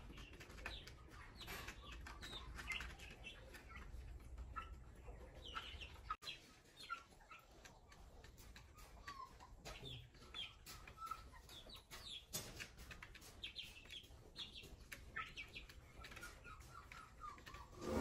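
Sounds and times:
chicks peeping: 0.0s - 18.0s
beaks clicking on trays: 6.8s - 17.8s.

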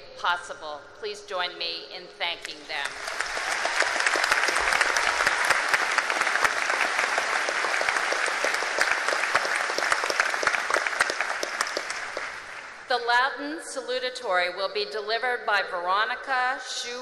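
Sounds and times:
crowd applauding: 2.8s - 12.8s.

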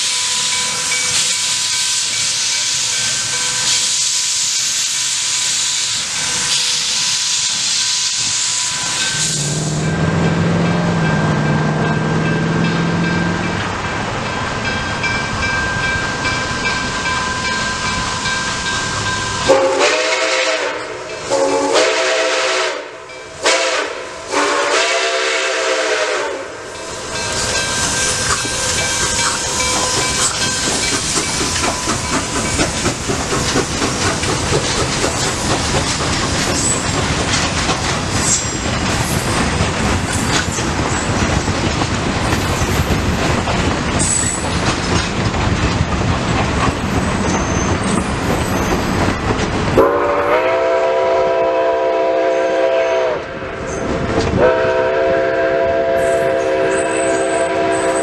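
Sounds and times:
steam locomotive chime whistle: 0.0s - 13.6s, 14.7s - 32.7s, 49.8s - 58.0s
train rumbling and clattering on rails: 0.0s - 58.0s.

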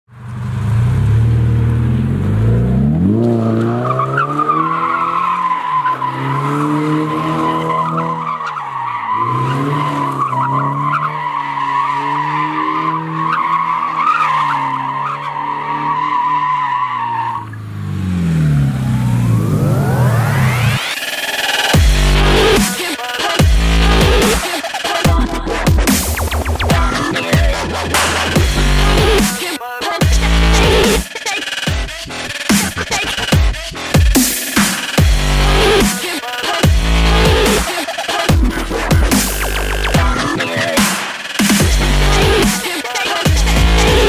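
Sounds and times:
car engine revving: 0.1s - 44.0s
tyres squealing: 3.5s - 17.7s.

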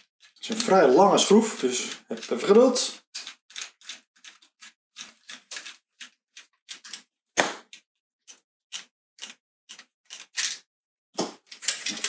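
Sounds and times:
screwdriver turning screw scrapes: 3.2s - 7.1s, 8.3s - 10.6s.

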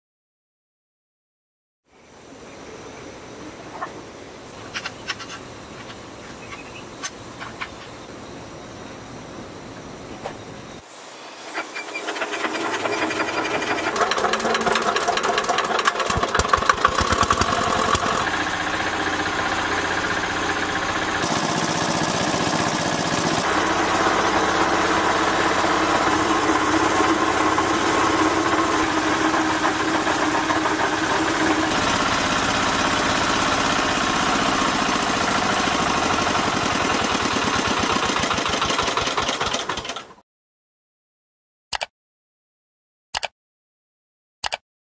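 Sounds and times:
engine hand-cranked: 11.5s - 18.3s, 26.0s - 40.2s
diesel engine running: 11.6s - 40.0s.

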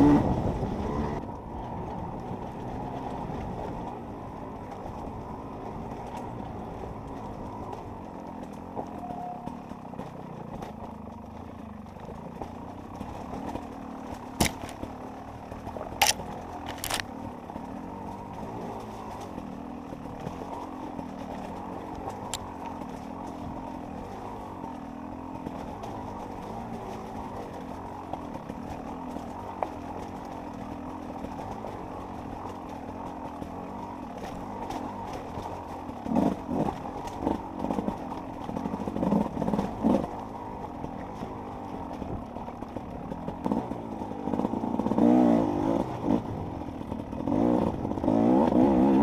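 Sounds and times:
motorcycle engine running: 0.0s - 49.0s.

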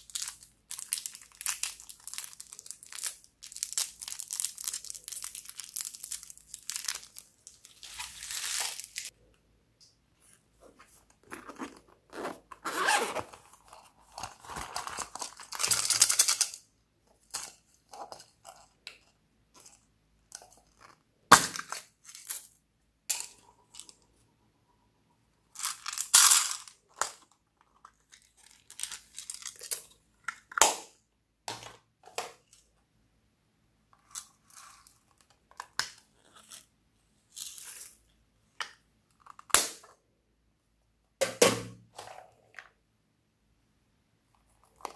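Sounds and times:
zipper being pulled open: 11.2s - 13.5s.

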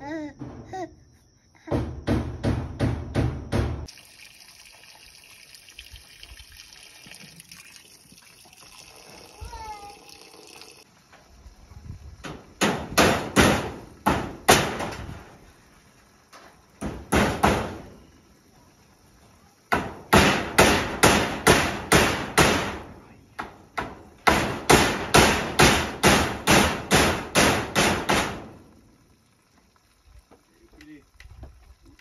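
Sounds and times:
hammer driving nails: 19.7s - 28.5s.

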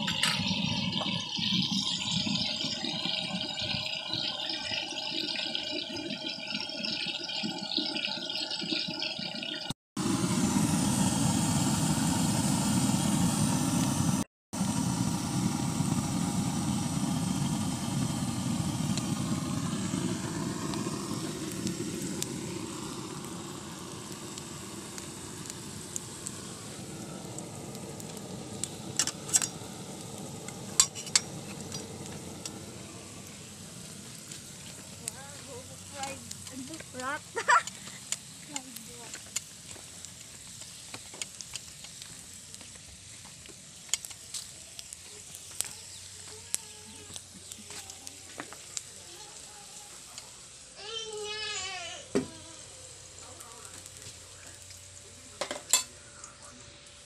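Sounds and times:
meat sizzling in a wok: 0.0s - 4.8s, 10.0s - 57.0s
gas burner roaring: 0.0s - 57.0s.

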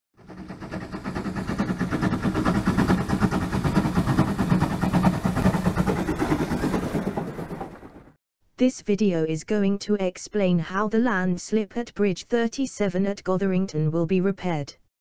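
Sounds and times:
engine running with pulsing beat: 0.2s - 8.2s.

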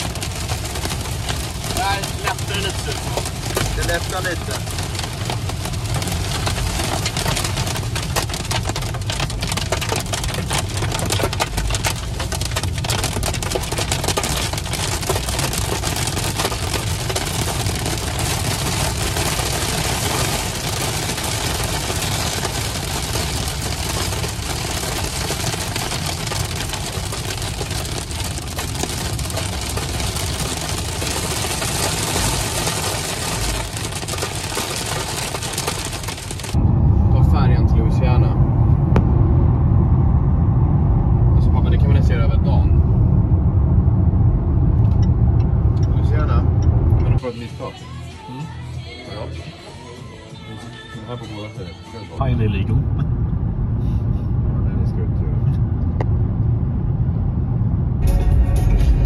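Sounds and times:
heavy rain on car windscreen: 0.0s - 36.6s
road and engine rumble: 0.0s - 59.0s.

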